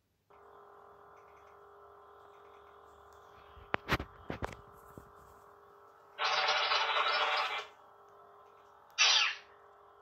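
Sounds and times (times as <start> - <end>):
toy lightsaber buzzing hum: 6.0 - 10.0.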